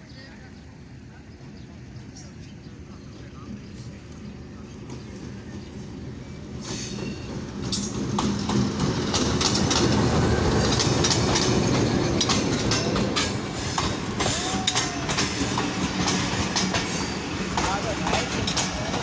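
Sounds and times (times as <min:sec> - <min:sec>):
diesel locomotive engine running: 0:00.2 - 0:19.0
train wheels clacking over rail joints: 0:06.6 - 0:19.0.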